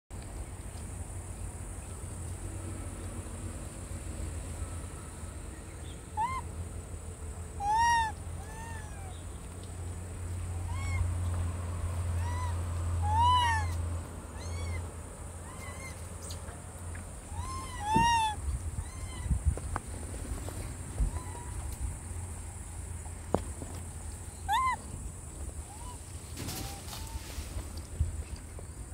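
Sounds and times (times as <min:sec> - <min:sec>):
high insect drone: 0:00.4 - 0:28.9
monkey coo calls: 0:06.1 - 0:06.5, 0:07.6 - 0:09.2, 0:10.6 - 0:11.1, 0:12.2 - 0:13.8, 0:14.4 - 0:14.8, 0:15.4 - 0:16.4, 0:17.3 - 0:19.3, 0:24.4 - 0:24.9, 0:25.6 - 0:27.4.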